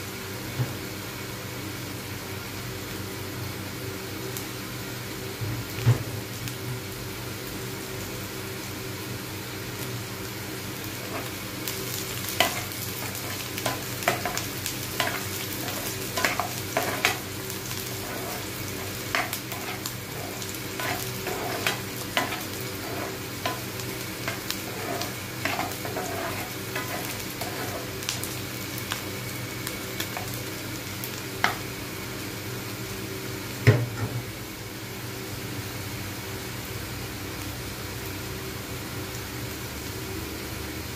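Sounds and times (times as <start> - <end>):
onions sizzling in oil: 0.0 - 40.9
metal spatula scraping a pan: 12.4 - 14.4, 15.0 - 28.0
loud knock on pan: 33.6 - 34.2.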